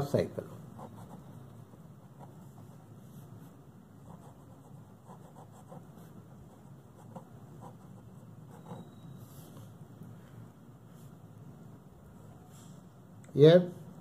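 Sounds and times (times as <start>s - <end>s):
low steady hum: 0.0s - 14.0s
pen scratching on paper: 0.6s - 3.1s, 4.0s - 9.5s.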